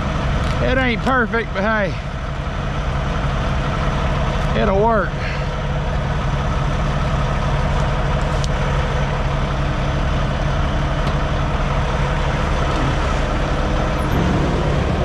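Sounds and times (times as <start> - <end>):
diesel truck engine idling: 0.0 - 15.0.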